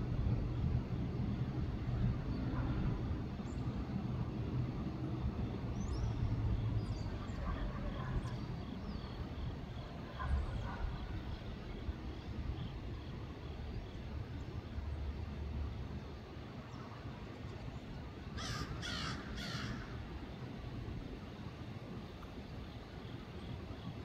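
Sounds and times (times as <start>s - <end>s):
freight train rumbling: 0.0s - 16.2s
crow cawing: 18.4s - 20.0s.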